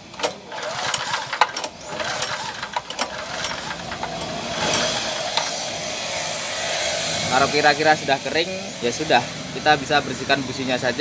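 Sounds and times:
recoil starter cranking engine: 0.0s - 5.8s
hiss of air blowing out: 4.4s - 8.2s.

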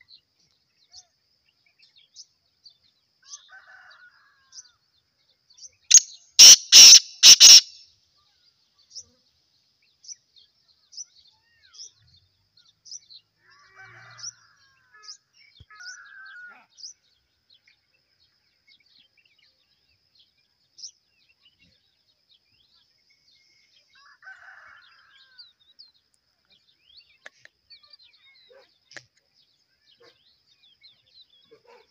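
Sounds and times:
small birds chirping: 4.5s - 31.9s
francolin giving harsh calls: 5.9s - 7.8s
insects chirping: 5.9s - 7.8s.

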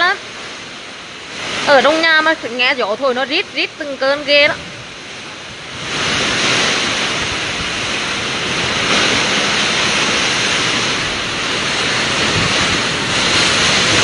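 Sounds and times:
wind driving heavy rain: 0.0s - 14.0s.

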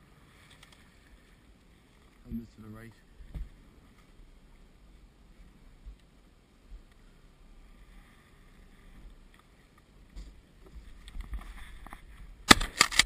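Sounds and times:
water noise: 0.0s - 13.0s
wind: 0.0s - 13.0s
sharp cracks: 12.4s - 13.0s.

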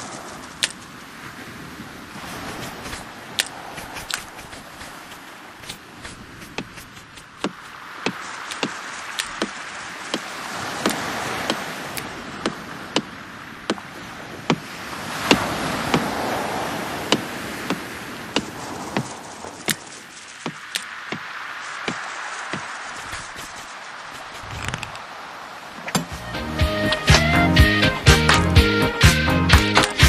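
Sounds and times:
surf washing on beach: 0.0s - 29.1s
sharp clicks: 2.8s - 7.5s, 8.1s - 9.5s.

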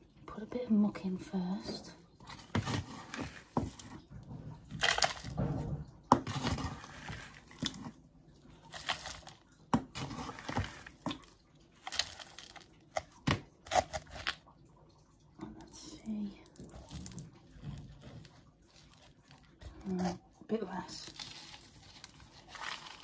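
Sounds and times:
compost pouring and scraping: 1.4s - 14.5s, 16.6s - 23.0s
scoop knocking: 1.7s - 14.6s, 21.0s - 23.0s.

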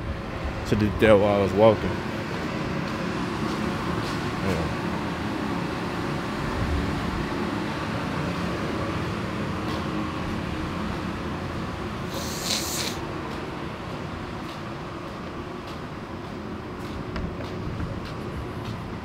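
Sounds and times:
short hiss: 12.1s - 13.0s.

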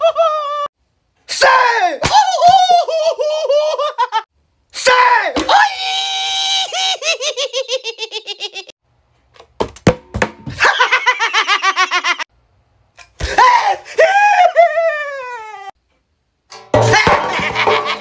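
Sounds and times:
exaggerated laughter: 0.0s - 0.7s, 2.2s - 4.3s, 6.5s - 8.8s, 10.5s - 12.3s, 16.9s - 18.0s.

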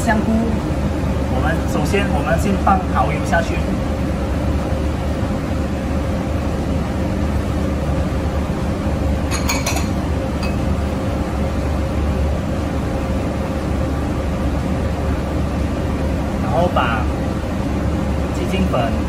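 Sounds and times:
steady low hum: 0.0s - 19.0s
porcelain clinking: 9.3s - 10.7s.

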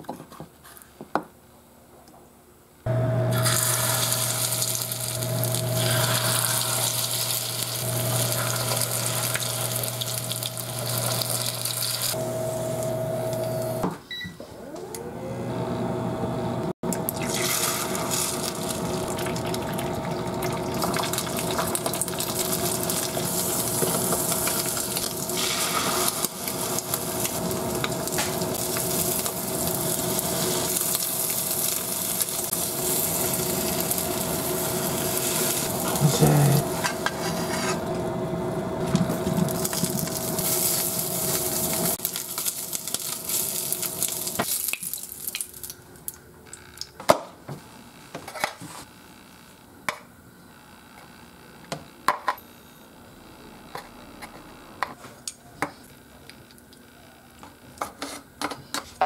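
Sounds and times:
steady hum: 2.9s - 13.8s, 15.2s - 44.5s
egg sizzling in a pan: 3.3s - 12.2s, 17.1s - 37.5s, 38.8s - 45.8s
sausages frying: 3.3s - 12.2s, 17.0s - 46.2s.

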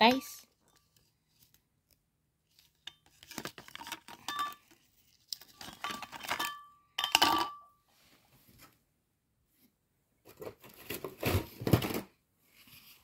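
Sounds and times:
glass ornaments clinking: 4.2s - 4.7s, 5.8s - 7.7s.

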